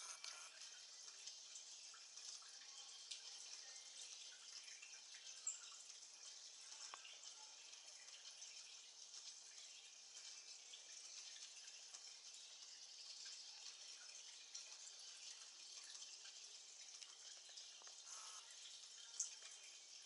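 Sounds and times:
water hissing: 18.0 - 18.5.

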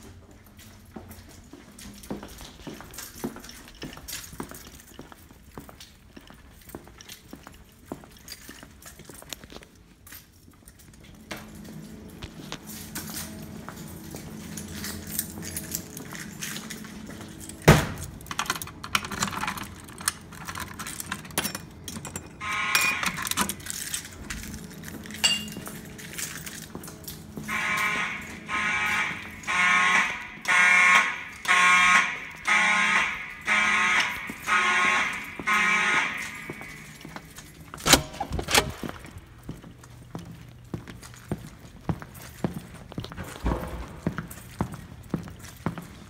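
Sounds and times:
footsteps on a hard floor: 10.8 - 17.6, 38.8 - 46.0
fire alarm horn pulsing: 11.3 - 18.6, 22.3 - 38.7.

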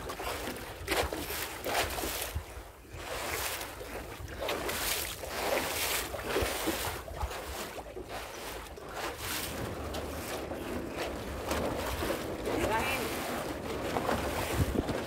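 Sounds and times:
paddle strokes splashing water: 0.0 - 15.0
wind rumbling on microphone: 0.0 - 15.0.

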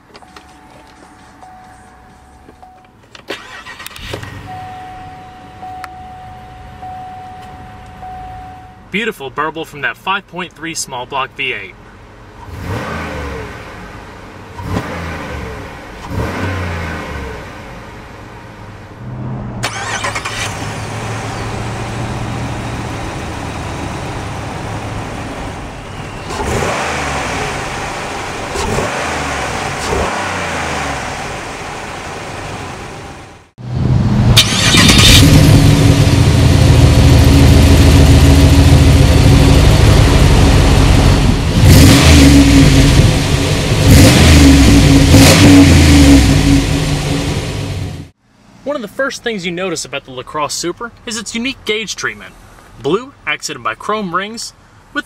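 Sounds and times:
car engine revving: 12.4 - 18.1, 18.8 - 48.2.

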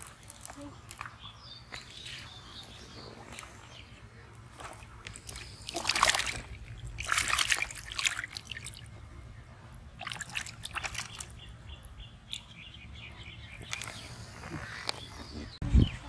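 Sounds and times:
fish thrashing and splashing in water: 4.4 - 9.1, 9.8 - 11.6.

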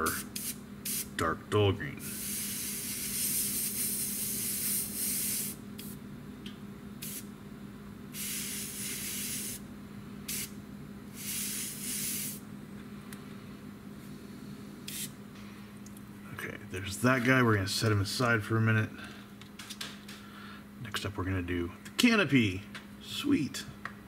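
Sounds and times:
airbrush spraying hiss: 0.0 - 1.1, 2.0 - 6.0, 7.0 - 7.3, 8.1 - 9.6, 10.3 - 12.4, 14.9 - 15.1
steady low hum: 0.0 - 24.0.

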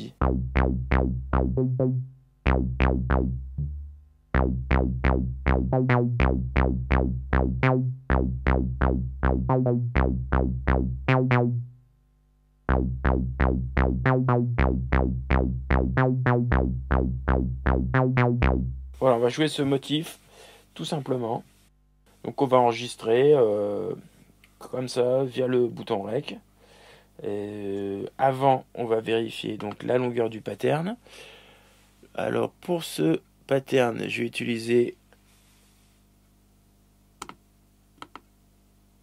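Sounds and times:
bass synth notes: 0.0 - 12.0, 12.6 - 19.2.

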